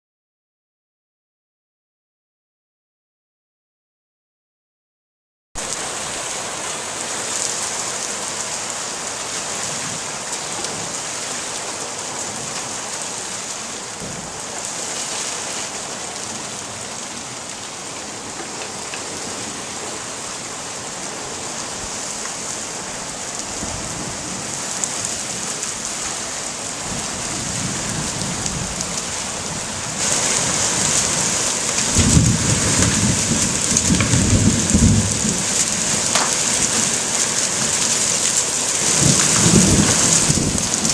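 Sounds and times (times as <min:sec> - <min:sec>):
heavy rain on paving: 0:05.6 - 0:40.9
rolling thunder: 0:26.8 - 0:36.8, 0:38.8 - 0:40.9
hailstones falling: 0:27.4 - 0:40.9.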